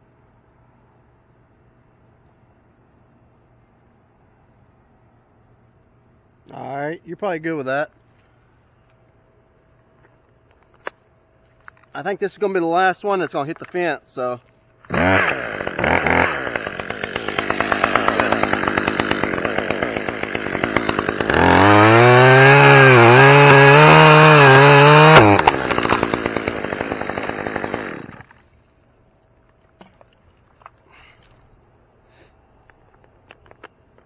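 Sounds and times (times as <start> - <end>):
chainsaw cutting wood: 14.9 - 28.6.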